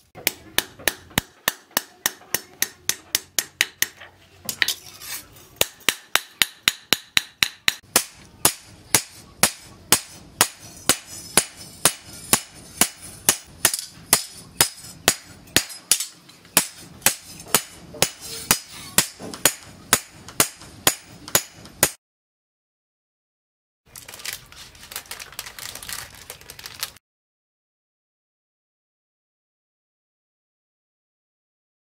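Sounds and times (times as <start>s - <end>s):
hammer striking steel on anvil: 0.2s - 4.0s, 5.6s - 22.0s.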